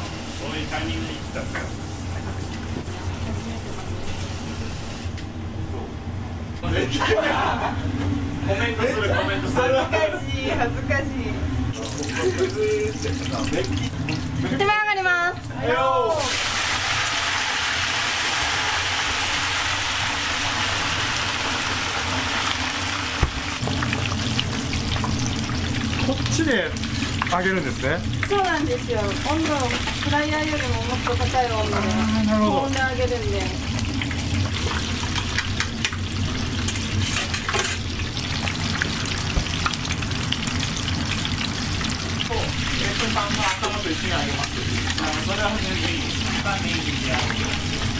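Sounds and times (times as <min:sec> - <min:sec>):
oil sizzling and crackling: 0:11.7 - 0:14.6, 0:16.1 - 0:47.9.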